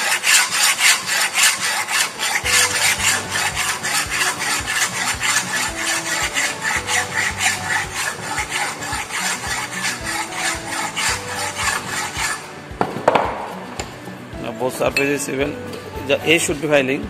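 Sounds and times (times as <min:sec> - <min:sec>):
file scraping metal: 0:00.0 - 0:12.6.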